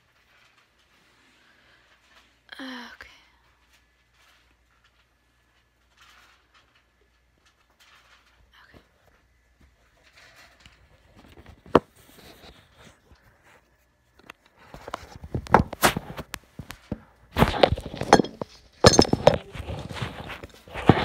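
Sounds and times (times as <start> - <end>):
phone handling knocks and rubbing: 15.3 - 21.0.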